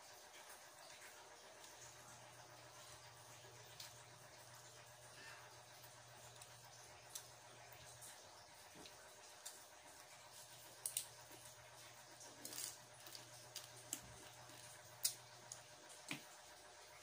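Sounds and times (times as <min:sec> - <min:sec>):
faint steady hum: 0:00.0 - 0:17.0
shrimp being peeled and chewed: 0:02.8 - 0:16.4.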